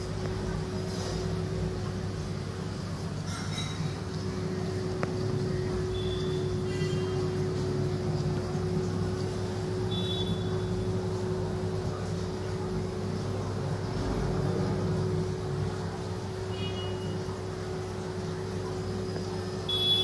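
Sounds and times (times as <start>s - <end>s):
aquarium pumps humming: 0.0s - 20.0s.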